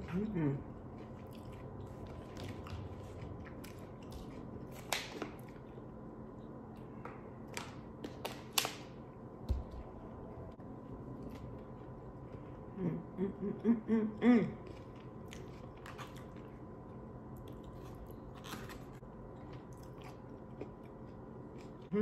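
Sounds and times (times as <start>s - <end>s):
soft chewing: 0.7s - 7.6s, 14.6s - 22.0s.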